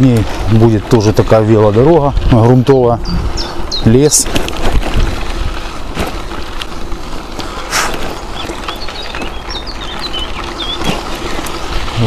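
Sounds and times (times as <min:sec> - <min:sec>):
bicycle riding wind and rolling: 0:00.0 - 0:12.0
bird chirping: 0:00.9 - 0:04.2, 0:07.5 - 0:11.8
brief swish: 0:07.7 - 0:08.0.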